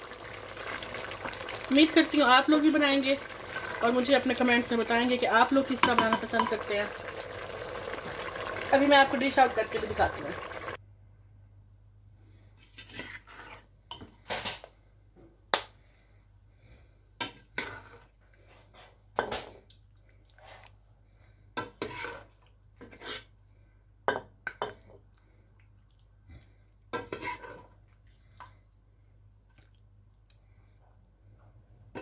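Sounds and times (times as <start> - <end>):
metal ladle scraping a pot: 12.6 - 13.7, 21.6 - 23.3, 27.0 - 27.8.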